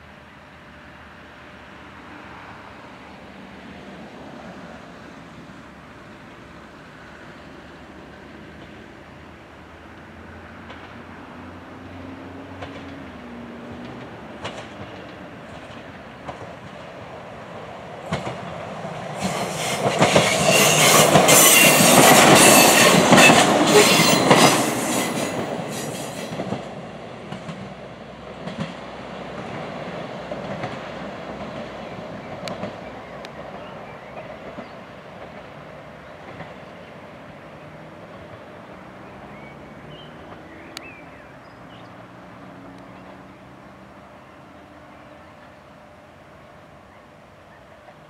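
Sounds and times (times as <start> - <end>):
railbus passing: 0.0 - 48.0
wheels clicking over rail joints: 12.4 - 36.7
wheel hiss: 19.1 - 26.4.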